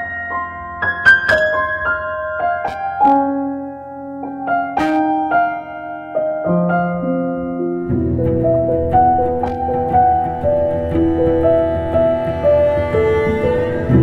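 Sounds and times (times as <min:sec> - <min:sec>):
slow piano melody: 0:00.0 - 0:14.0.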